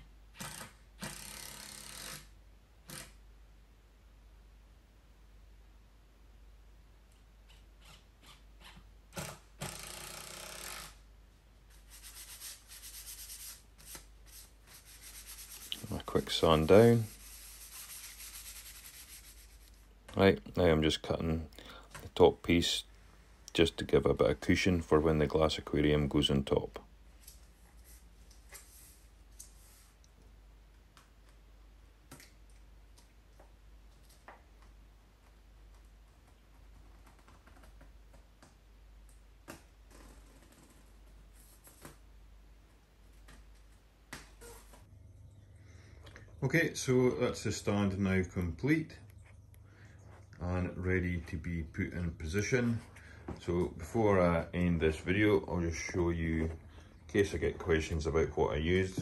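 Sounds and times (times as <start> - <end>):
cordless drill driving a screw: 0.4 - 2.3, 9.2 - 11.0
sandpaper rubbing on plywood: 11.7 - 19.7.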